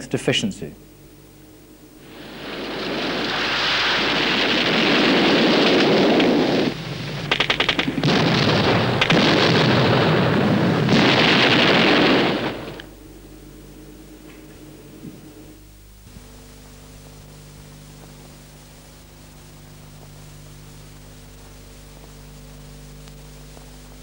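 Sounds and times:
artillery explosions: 0:02.0 - 0:15.4
rapid gunfire: 0:02.1 - 0:12.9.

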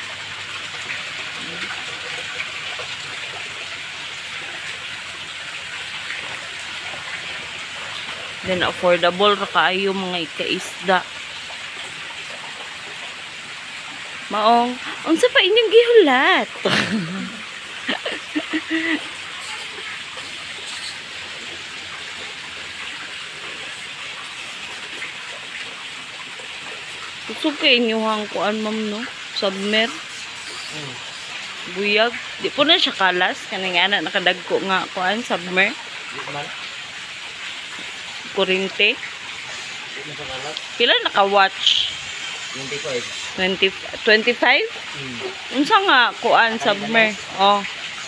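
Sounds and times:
running splashing water: 0:00.0 - 0:48.0.

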